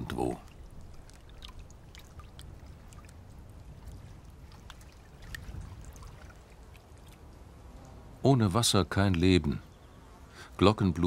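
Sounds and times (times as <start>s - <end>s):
water drips and plinks: 0.0s - 8.0s
water trickling over rock: 0.0s - 8.1s.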